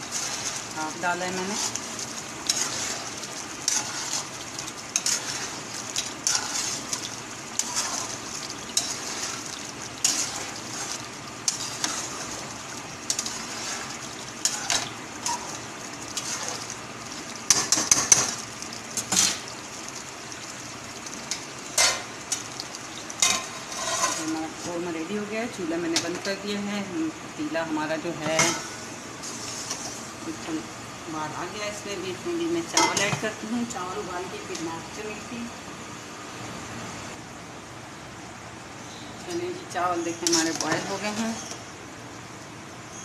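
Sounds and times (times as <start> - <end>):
simmering gravy sizzling: 0.0 - 26.5, 28.4 - 35.6, 38.1 - 43.0
metal spatula scraping a pot: 2.4 - 4.3, 4.9 - 5.6, 6.2 - 7.0, 7.6 - 9.4, 10.0 - 12.5, 23.2 - 24.3.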